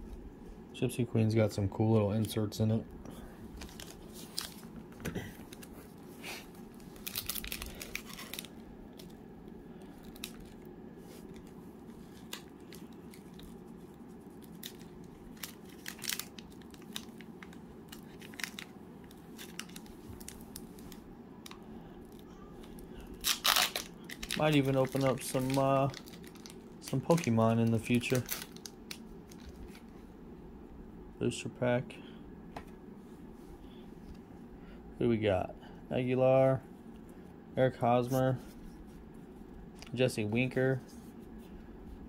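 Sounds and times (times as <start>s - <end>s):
wrappers crinkling and clicking: 3.6s - 4.8s, 6.6s - 9.2s, 9.8s - 29.9s.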